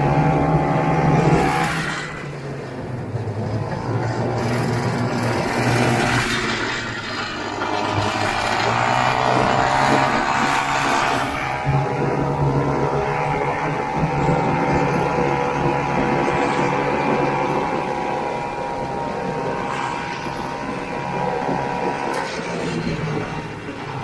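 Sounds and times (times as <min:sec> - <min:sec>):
snowmobile engine running: 0:00.0 - 0:24.0.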